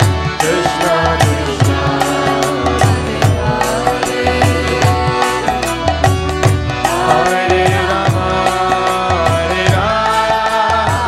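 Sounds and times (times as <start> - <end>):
hand drum beating: 0.0 - 9.9
sustained pitched notes: 0.4 - 8.3.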